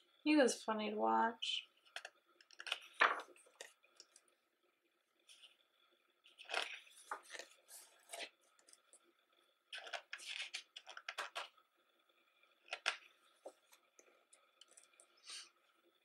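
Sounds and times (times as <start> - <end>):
book pages turning: 1.8 - 4.3, 6.2 - 9.0, 9.7 - 11.6, 12.6 - 15.1.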